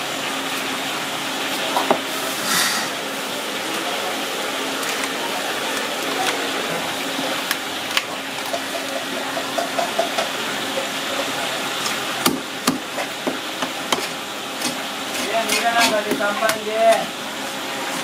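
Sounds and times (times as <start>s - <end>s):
cleaver chopping on wooden block: 12.2s - 12.8s.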